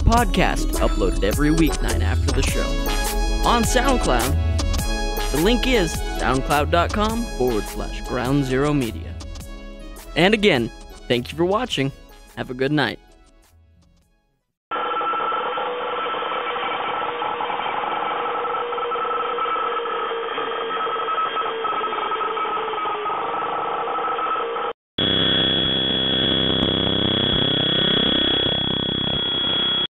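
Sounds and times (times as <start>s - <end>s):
high steady whine: 25.0s - 29.9s
static-like electronic noise: 25.0s - 29.9s.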